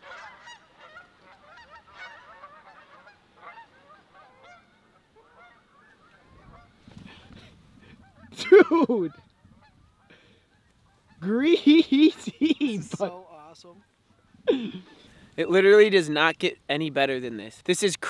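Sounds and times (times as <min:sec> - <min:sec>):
geese honking: 0:00.0 - 0:15.2.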